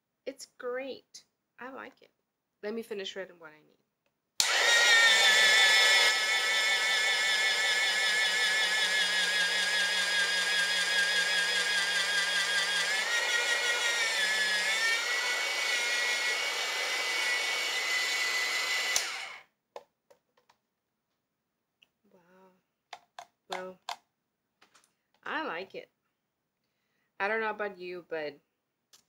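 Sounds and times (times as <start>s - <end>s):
small electric motor whining: 4.4s - 19.4s.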